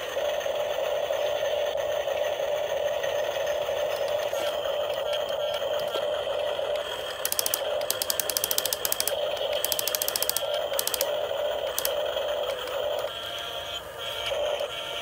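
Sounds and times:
electric motors whining: 0.0 - 15.0
rapid ratcheting gear clicks: 3.8 - 13.1.

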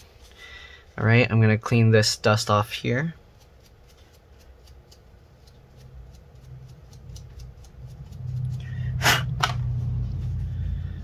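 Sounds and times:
rubbing and handling noises: 0.0 - 1.3, 2.7 - 11.0
short scrapes: 8.4 - 11.0.

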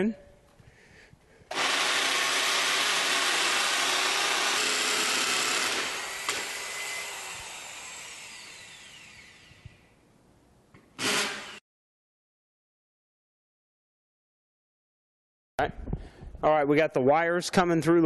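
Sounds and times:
power drill boring into concrete: 1.5 - 9.9, 11.0 - 11.6.

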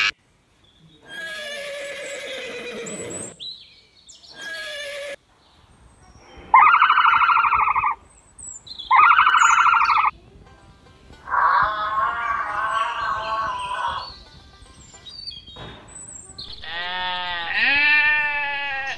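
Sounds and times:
horse whinnying: 1.1 - 3.4, 4.4 - 5.2.

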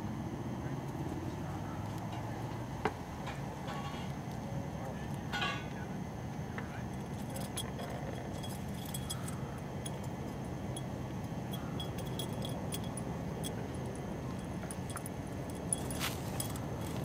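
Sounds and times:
low background hum: 0.0 - 17.0
cat collar tinkling: 7.0 - 17.0.

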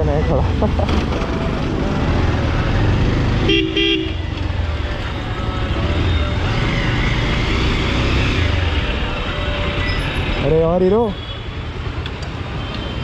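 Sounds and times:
vehicle horn toots: 3.4 - 4.3.

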